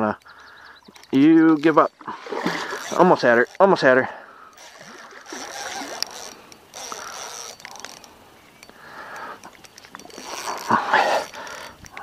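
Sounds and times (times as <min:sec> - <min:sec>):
fishing reel whirring and clicking: 0:00.8 - 0:12.0.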